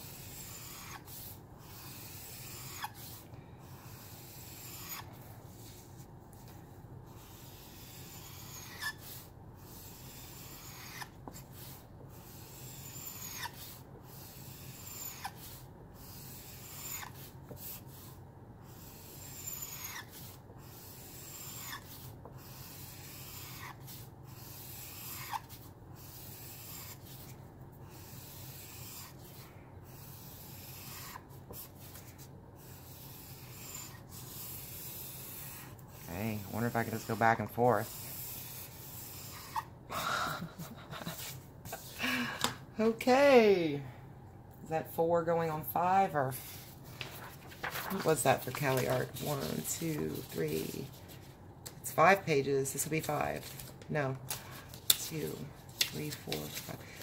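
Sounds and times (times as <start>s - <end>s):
marker nib scratching on paper: 0.0s - 39.7s, 48.0s - 51.3s, 54.9s - 57.0s.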